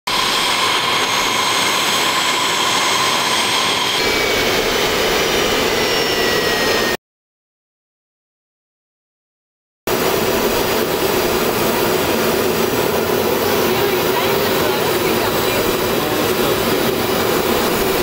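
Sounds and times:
high whistling whine: 0.1 - 7.0
jet engines running: 0.1 - 7.0, 9.9 - 18.0.

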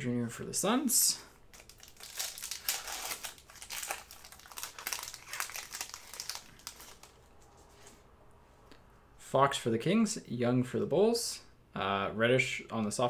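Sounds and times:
cards and plastic packaging rustling: 1.5 - 8.0.

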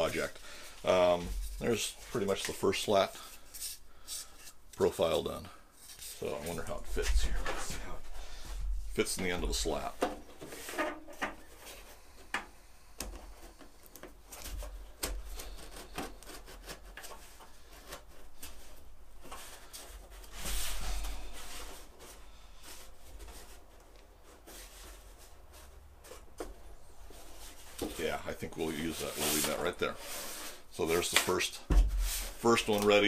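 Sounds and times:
rubbing and scraping on metal: 27.0 - 32.6.

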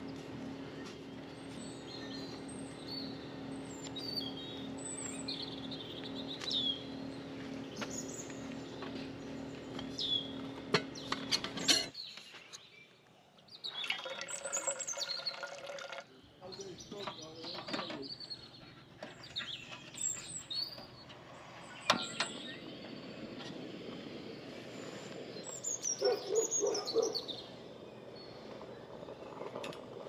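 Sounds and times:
steady low hum: 0.0 - 11.9, 20.9 - 30.0
small birds chirping: 0.0 - 30.0.

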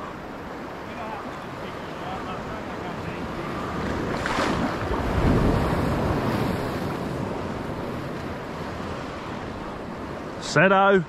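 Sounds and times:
sea water lapping: 0.0 - 11.0
wind buffeting microphone: 2.6 - 10.4.

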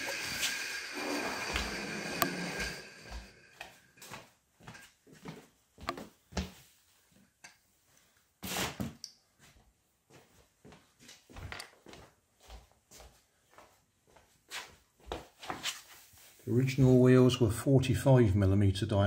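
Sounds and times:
footsteps on wooden floor: 1.4 - 6.7, 9.4 - 15.7.

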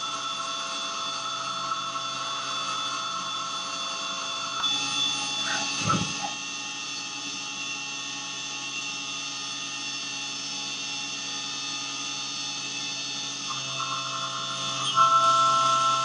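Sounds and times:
low hum: 0.0 - 7.2
milling machine cutting metal: 0.0 - 16.0.

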